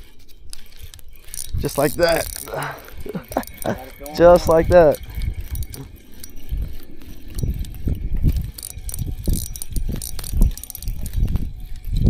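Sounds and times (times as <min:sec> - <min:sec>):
fishing reel clicking whir: 0:00.0 - 0:12.0.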